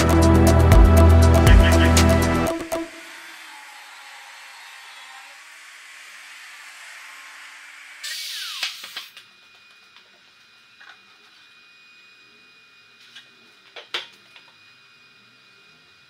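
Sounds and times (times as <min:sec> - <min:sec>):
angle grinder winding down: 0:00.0 - 0:10.0.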